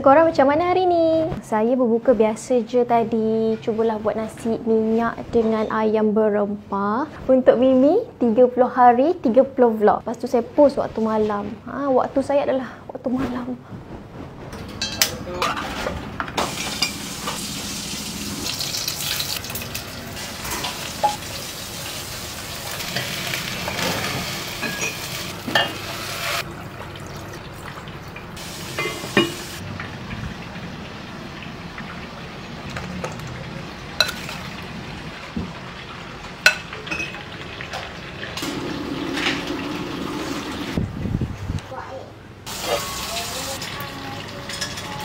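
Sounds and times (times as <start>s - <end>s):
hot oil sizzling: 16.4s - 40.8s, 42.5s - 45.0s
spoons and pots clinking: 22.8s - 25.9s, 28.8s - 29.6s, 34.0s - 34.4s.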